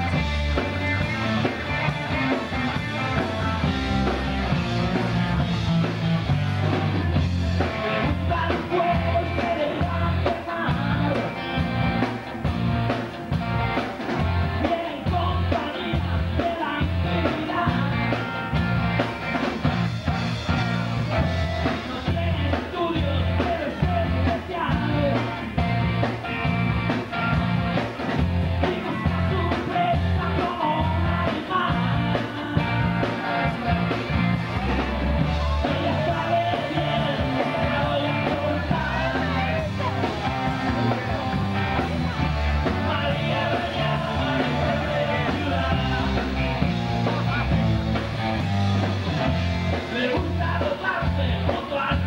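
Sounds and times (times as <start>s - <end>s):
bass guitar: 0.0s - 52.0s
drums: 0.0s - 52.0s
electric guitars: 0.0s - 52.0s
person singing: 6.8s - 12.2s, 14.0s - 18.3s, 20.2s - 25.5s, 28.5s - 47.7s, 48.3s - 52.0s.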